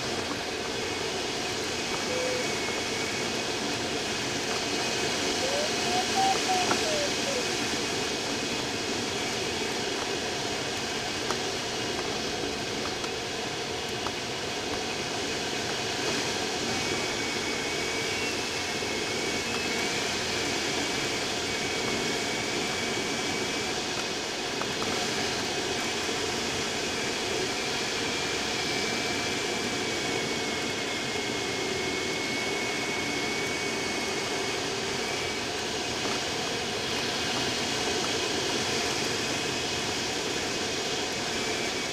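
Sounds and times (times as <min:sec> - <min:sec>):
faint thin high tone: 0:02.0 - 0:02.8.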